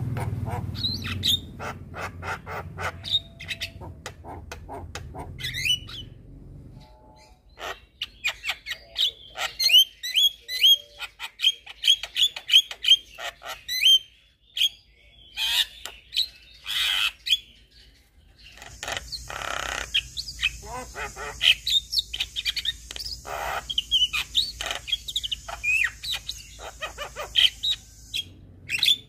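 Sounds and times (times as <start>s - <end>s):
harsh rasping bird squawks: 0.1s - 6.2s, 7.2s - 10.0s, 18.6s - 29.0s
bird whistles and clicks: 21.7s - 23.2s.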